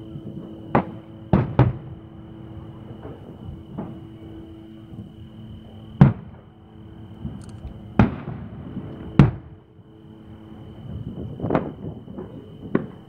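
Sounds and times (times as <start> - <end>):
distant firework booms: 0.7 - 2.1, 6.0 - 6.4, 7.2 - 9.6, 11.0 - 13.0.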